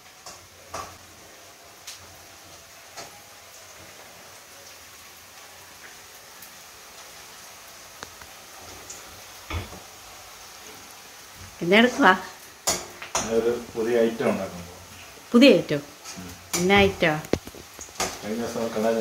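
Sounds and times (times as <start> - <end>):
gas stove hiss: 0.0 - 19.0
person speaking: 13.3 - 14.6.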